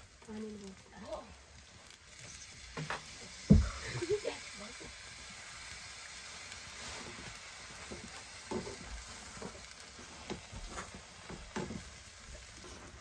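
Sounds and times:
noodles sizzling in a metal pan: 0.0 - 13.0
utensil scraping and knocking on pan: 7.8 - 12.0.

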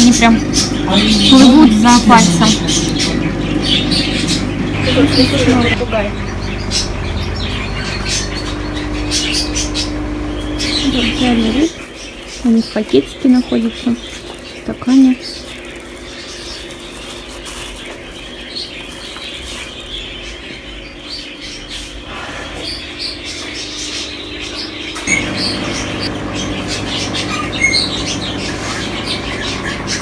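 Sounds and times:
low hum: 0.0 - 11.9
parrots chirping: 0.0 - 30.0.

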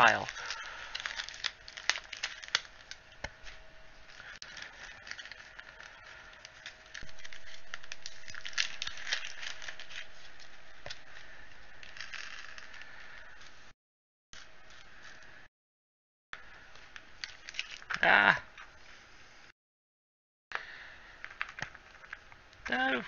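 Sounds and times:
plastic bag crinkling: 0.0 - 13.6.

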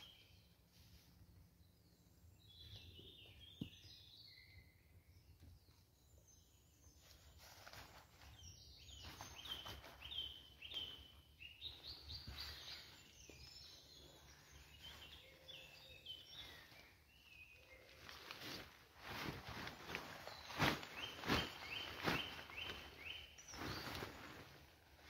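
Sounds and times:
tarp rustling: 7.1 - 8.3, 17.9 - 25.0.

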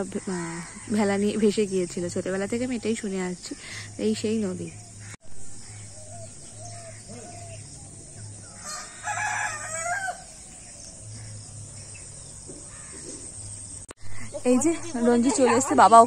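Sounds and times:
rooster crowing: 8.4 - 10.6.

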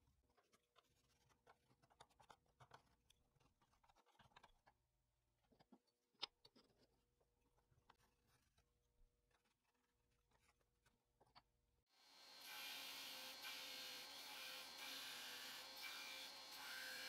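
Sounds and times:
pencil scratching on wood: 12.1 - 17.0.

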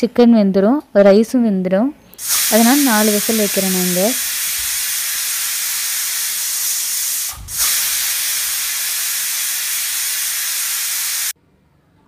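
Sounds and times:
pressure cooker steam hissing: 2.2 - 11.4.

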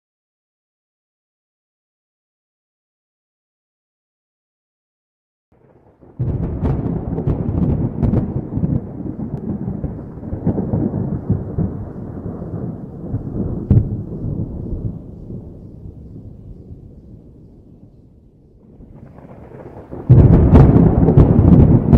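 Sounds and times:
thunder rumbling and cracking: 5.6 - 21.9.

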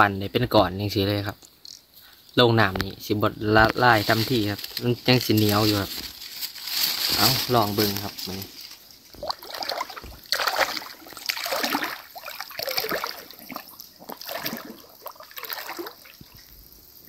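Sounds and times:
water splashing from wading: 7.8 - 16.5.

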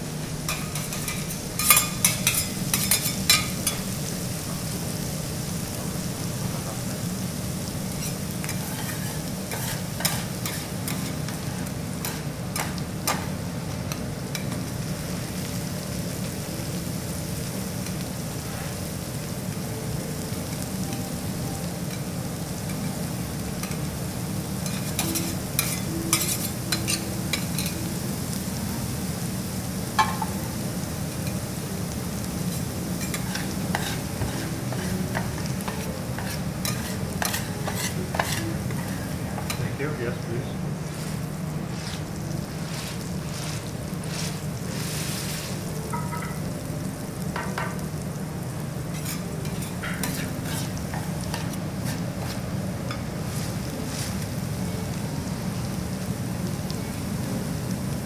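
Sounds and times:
rice sizzling on a griddle: 0.0 - 58.0
metal spatulas scraping: 0.5 - 3.9, 8.0 - 13.2, 33.0 - 39.6, 40.9 - 45.7, 48.9 - 52.4.

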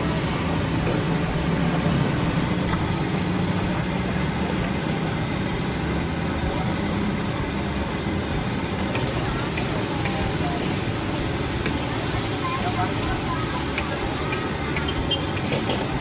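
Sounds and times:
burner flame rumbling: 0.0 - 16.0
garlic frying in oil: 0.0 - 16.0.

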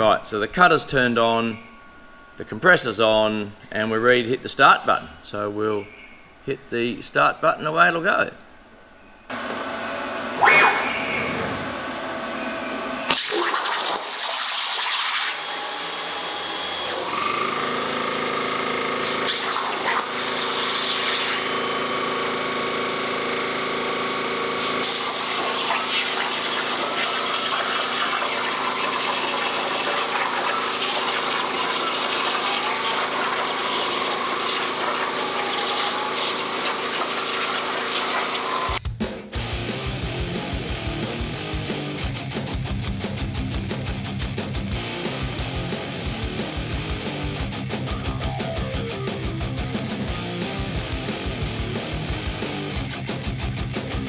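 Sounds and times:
faint wavering whine: 0.0 - 4.2
plasma cutter hissing: 13.1 - 38.8.

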